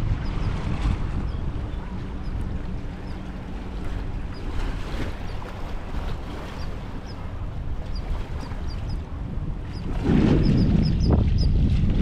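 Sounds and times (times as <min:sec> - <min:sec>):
low rumble: 0:00.0 - 0:08.0
wind and water rushing: 0:00.0 - 0:12.0.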